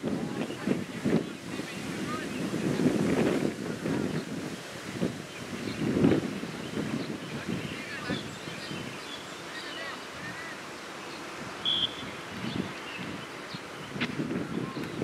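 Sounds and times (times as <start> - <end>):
faint distant voices: 0.0 - 4.4, 5.1 - 15.0
wind buffeting microphone: 0.0 - 15.0
short high whistle blast: 11.6 - 12.1.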